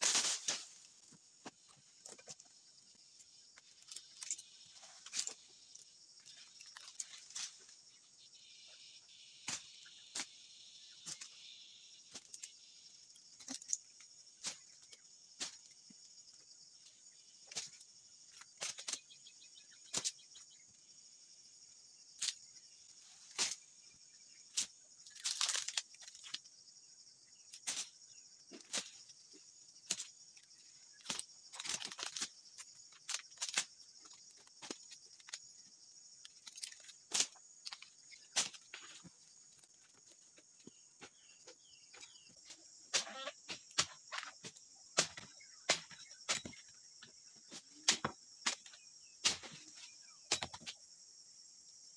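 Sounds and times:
insect buzz: 0.0s - 51.9s
crunching rustle: 24.5s - 26.4s, 29.8s - 35.6s.

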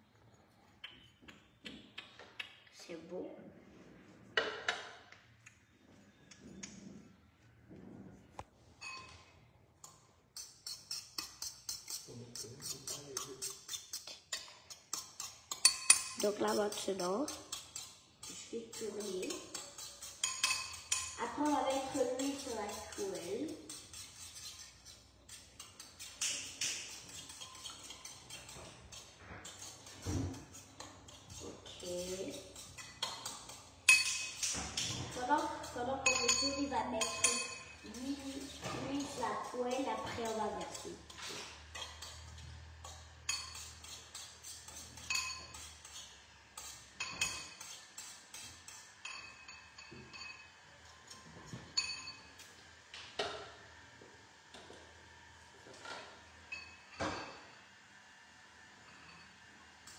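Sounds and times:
fork beating eggs in bowl: 9.8s - 52.8s.

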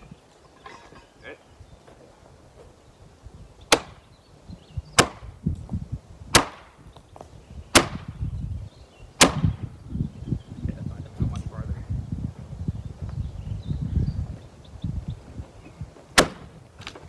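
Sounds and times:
tool striking wood: 3.7s - 4.0s, 5.0s - 5.2s, 6.3s - 6.7s, 7.8s - 8.0s, 16.2s - 16.5s.

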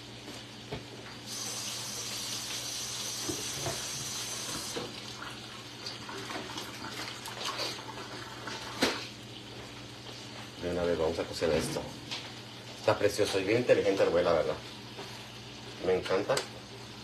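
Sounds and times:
kitchen tap running into sink: 1.3s - 9.0s.

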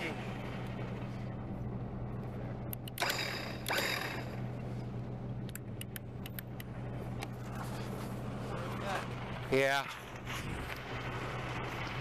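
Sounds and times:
vehicle engine idling: 0.0s - 12.0s
sharp clicks: 2.7s - 4.3s, 5.4s - 6.7s.

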